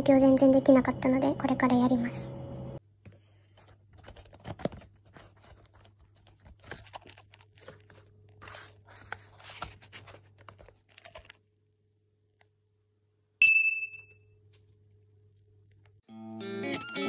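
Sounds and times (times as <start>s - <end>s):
paper pages rustling: 3.1s - 11.4s.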